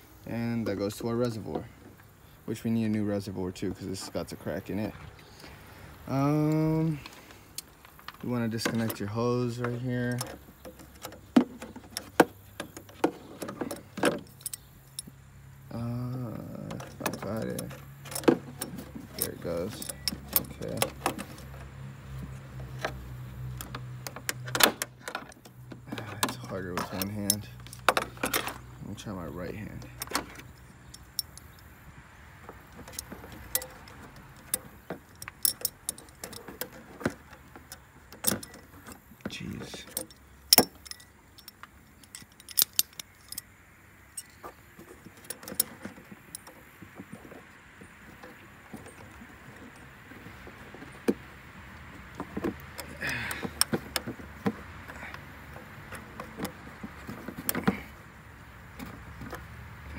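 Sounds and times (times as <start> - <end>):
pliers clinking on metal clamp: 39.7 - 43.5.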